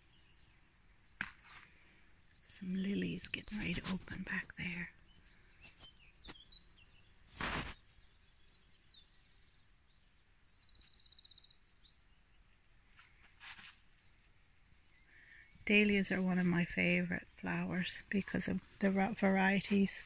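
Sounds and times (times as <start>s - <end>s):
songbird chirping and trilling: 0.0s - 20.0s
brief rustle: 7.3s - 7.8s, 12.9s - 13.9s.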